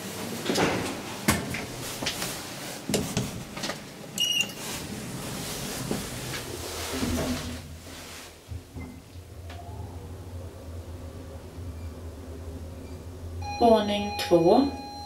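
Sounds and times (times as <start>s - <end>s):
lift doors sliding closed: 0.0s - 13.6s
knocks and clicks in lift: 0.4s - 2.3s.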